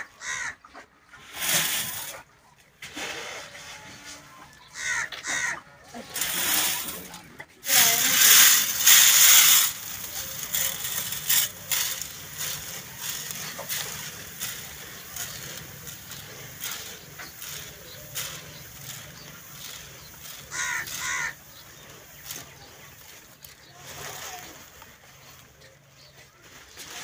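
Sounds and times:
grain pouring into metal tin: 0:01.4 - 0:02.2, 0:06.2 - 0:21.5
plastic sack rustling: 0:01.4 - 0:02.2, 0:06.1 - 0:27.0.

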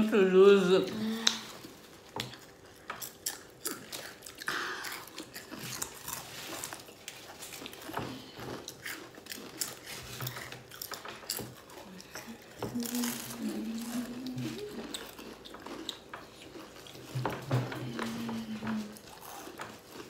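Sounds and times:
people crunching chips: 0:00.9 - 0:20.0.

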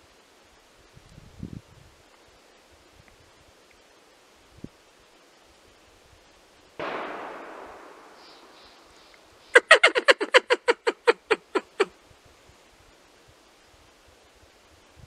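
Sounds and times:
gunshot: 0:06.8 - 0:09.1.

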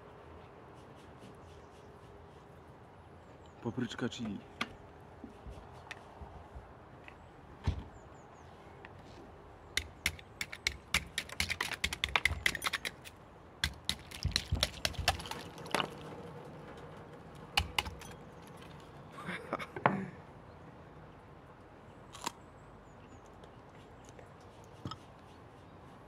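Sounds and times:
knife chipping ice: 0:09.8 - 0:16.0, 0:17.5 - 0:18.7.

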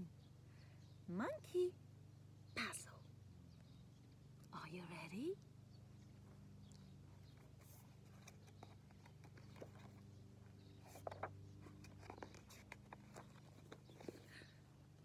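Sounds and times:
faint low hum: 0:00.0 - 0:15.0
book pages turning: 0:07.4 - 0:14.5.

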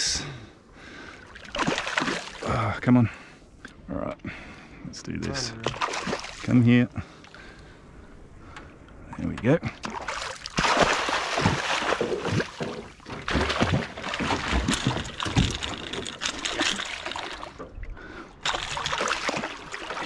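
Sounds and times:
water splashing against boat: 0:05.4 - 0:06.6, 0:08.4 - 0:20.0.

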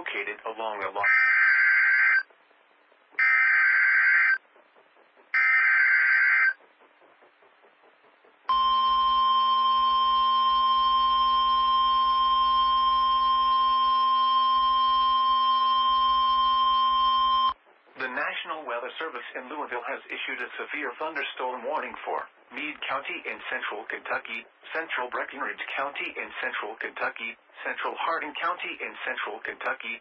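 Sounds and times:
steady warning alarm tone: 0:03.2 - 0:04.4, 0:05.3 - 0:06.6, 0:08.5 - 0:17.6.

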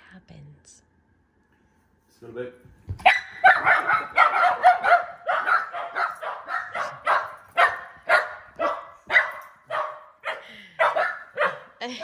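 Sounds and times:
dog barking excitedly: 0:03.0 - 0:11.8.

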